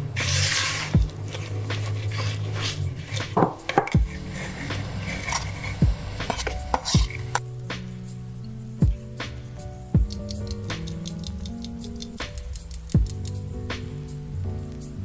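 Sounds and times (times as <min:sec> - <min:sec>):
spatula stirring dough in bowl: 0:00.0 - 0:07.4
background music: 0:00.0 - 0:15.0.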